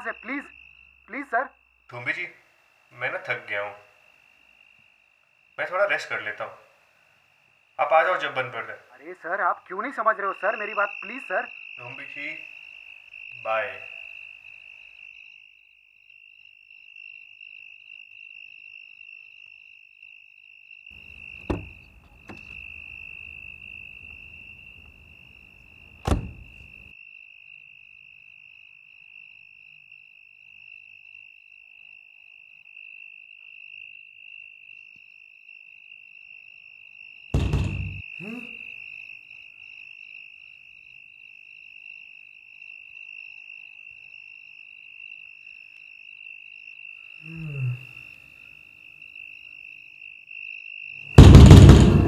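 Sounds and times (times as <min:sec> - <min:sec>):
crickets chirring: 0:00.0 - 0:52.0
loud knocks: 0:21.1 - 0:22.9, 0:25.9 - 0:26.7, 0:37.4 - 0:38.0, 0:51.2 - 0:52.0
heavy thud: 0:21.3 - 0:22.9, 0:25.9 - 0:26.8, 0:37.4 - 0:38.0, 0:51.2 - 0:52.0.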